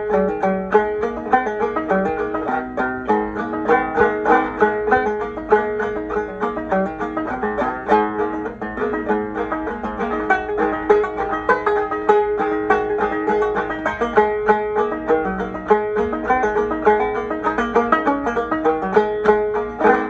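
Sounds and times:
banjo playing: 0.0 - 20.0.

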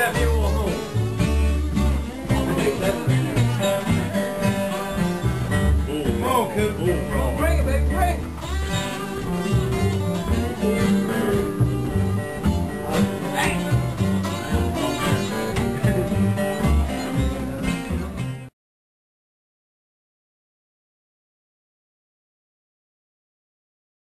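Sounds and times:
live blues band playing: 0.0 - 18.5.

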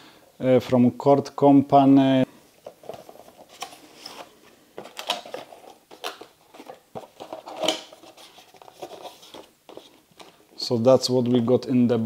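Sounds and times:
cardboard packaging rustling: 2.6 - 10.6.

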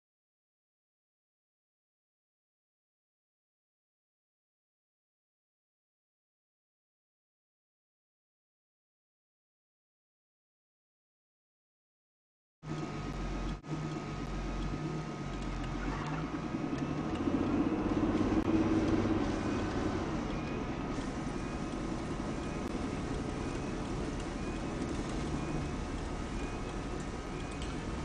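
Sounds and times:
engine and road rumble: 12.6 - 28.0
thin steady whine: 12.7 - 28.0.

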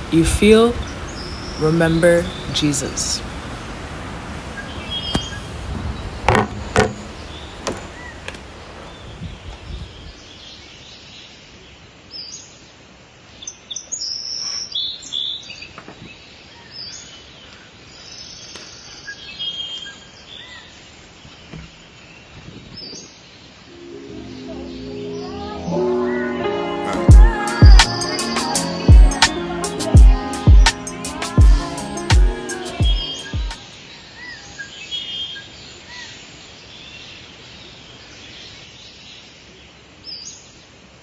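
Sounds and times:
birds chirping: 0.0 - 3.3, 4.5 - 12.6, 13.4 - 40.7
steady background hiss: 0.0 - 41.0
knocks and clicks: 6.3 - 7.9
music: 23.7 - 33.6.

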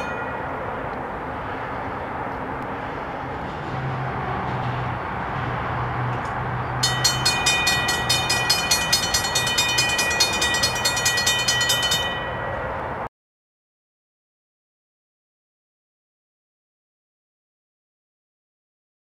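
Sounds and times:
railroad crossing bell ringing: 0.0 - 2.3, 6.7 - 13.1.

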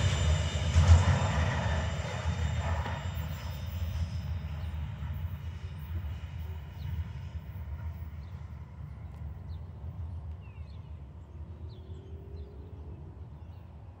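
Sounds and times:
train wagons rumbling: 0.0 - 9.1.

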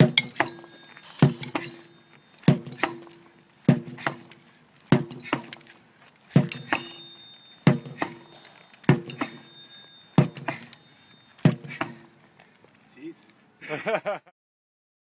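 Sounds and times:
light knock and short ring: 0.0 - 3.4, 6.4 - 12.0
sledgehammer striking rubber tire: 0.0 - 5.7, 6.3 - 12.1.

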